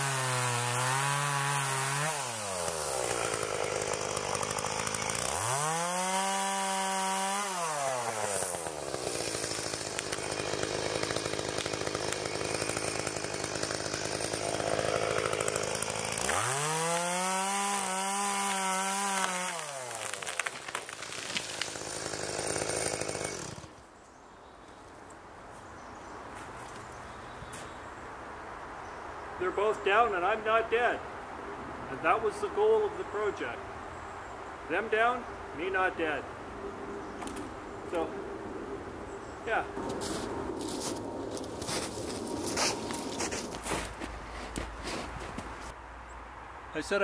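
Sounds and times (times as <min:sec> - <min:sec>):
chainsaw cutting and revving: 0:00.0 - 0:23.8, 0:39.5 - 0:45.8.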